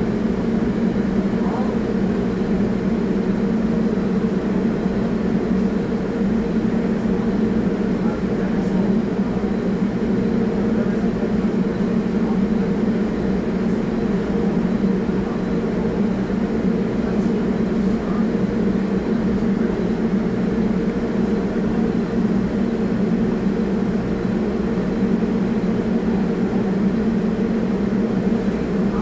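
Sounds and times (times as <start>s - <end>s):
train equipment humming: 0.0s - 29.0s.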